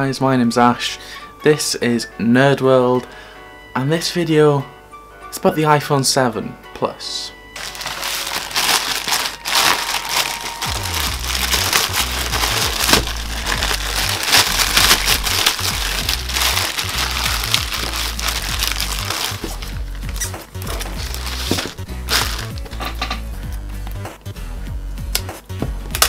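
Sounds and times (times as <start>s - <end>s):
background music with bass: 7.5s - 26.0s
plastic mailer bag crinkling: 7.6s - 22.7s.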